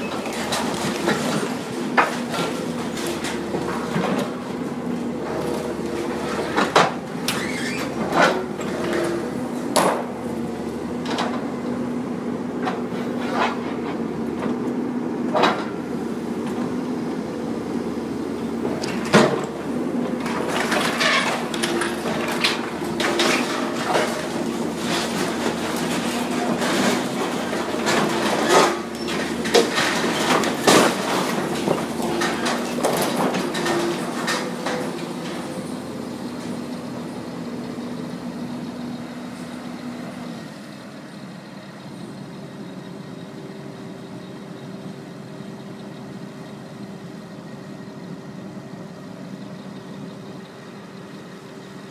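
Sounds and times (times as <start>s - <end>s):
excavator engine running: 0.0s - 51.9s
metal clanks and crashes: 20.2s - 35.4s.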